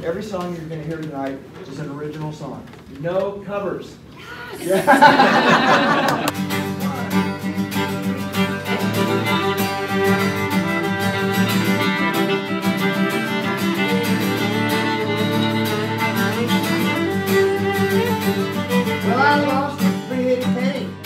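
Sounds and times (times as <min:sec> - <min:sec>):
acoustic guitars strumming: 0:04.8 - 0:21.0
fiddle melody: 0:06.3 - 0:21.0.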